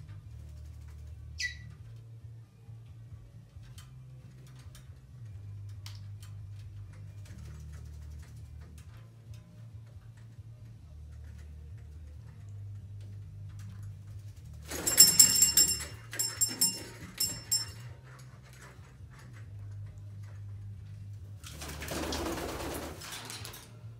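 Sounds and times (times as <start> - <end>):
sharp ringing strikes: 14.7 - 17.8.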